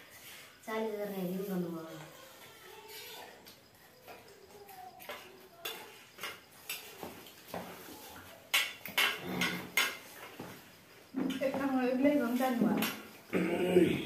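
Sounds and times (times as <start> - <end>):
spoon clinking on steel plates: 5.0 - 7.0, 8.5 - 10.4.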